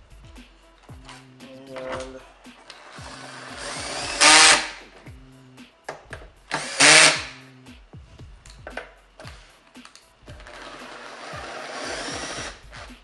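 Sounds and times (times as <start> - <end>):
power drill whining: 2.7 - 4.8, 6.5 - 7.4, 10.4 - 12.9.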